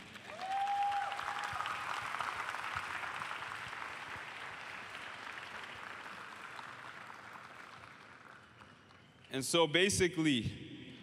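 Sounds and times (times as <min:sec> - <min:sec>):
large audience applauding: 0:00.0 - 0:09.3.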